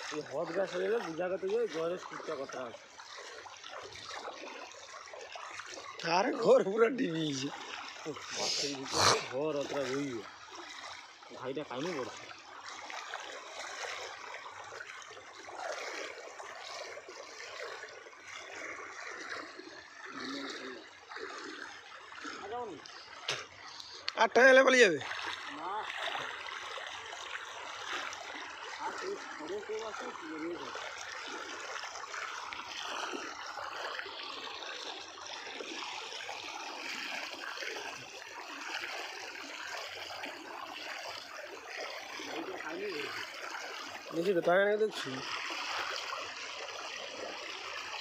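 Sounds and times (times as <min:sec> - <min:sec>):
rushing floodwater: 0:00.0 - 0:48.0.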